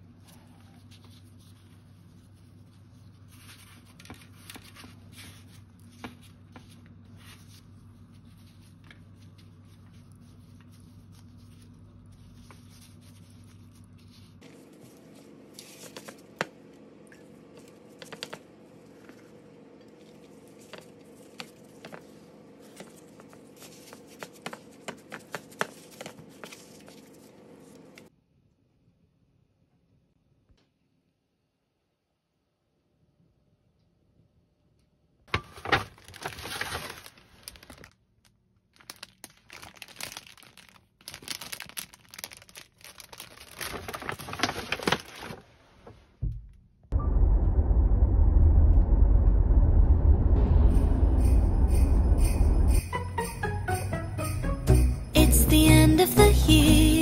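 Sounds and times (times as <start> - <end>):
gloved hands rustling dough: 0.0 - 28.1, 35.6 - 38.0, 38.7 - 46.0
steady low hum: 0.0 - 28.1, 46.3 - 55.8
sharp crinkles and clicks: 35.5 - 45.5.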